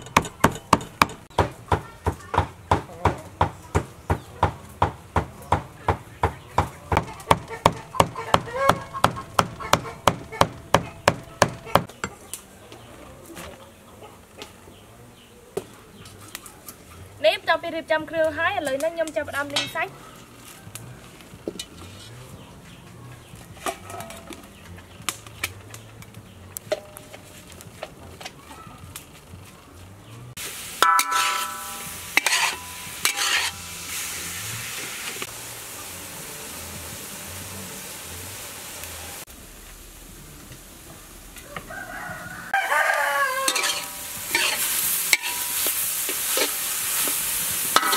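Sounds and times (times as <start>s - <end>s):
ladle clanking on wok: 0.0s - 1.3s, 30.8s - 33.7s, 43.4s - 47.9s
knife chopping meat on wooden board: 0.0s - 12.0s
meat sizzling: 6.9s - 11.9s, 30.4s - 47.9s.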